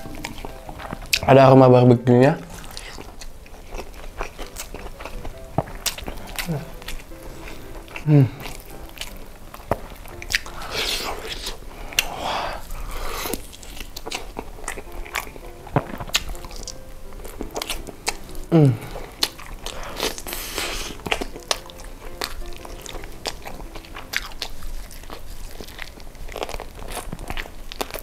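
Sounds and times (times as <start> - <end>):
wet chewing and lip smacks: 0.0 - 1.3, 2.4 - 28.0.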